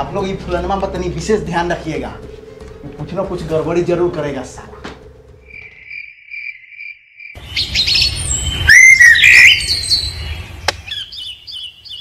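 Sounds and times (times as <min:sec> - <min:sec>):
cricket trilling: 0:05.4 - 0:07.4
birds chirping and whistling: 0:05.4 - 0:12.0.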